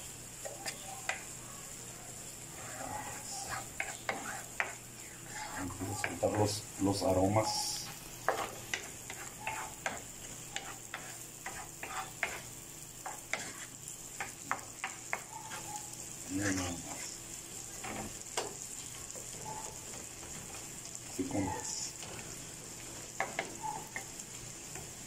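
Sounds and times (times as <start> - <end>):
vegetables sizzling in frying pan: 0.0 - 25.0
wooden spoon scraping pan: 2.5 - 6.2, 8.3 - 12.5, 13.1 - 13.8.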